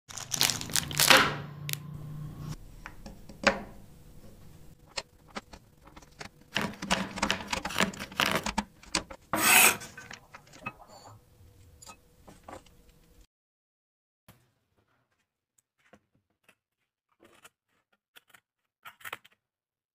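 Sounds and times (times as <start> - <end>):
plastic wrapper crinkling: 0.1 - 1.8
blade scraping across board: 9.2 - 10.2.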